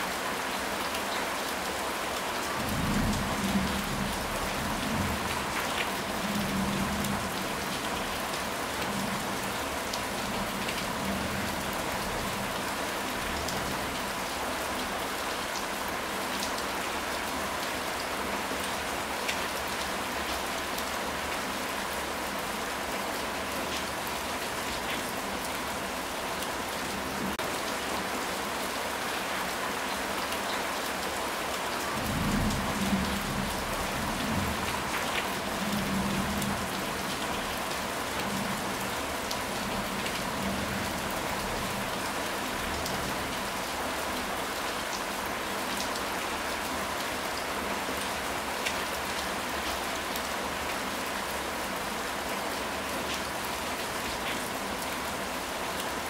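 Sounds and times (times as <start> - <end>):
heavy rain on tiled roof: 0.0 - 56.0.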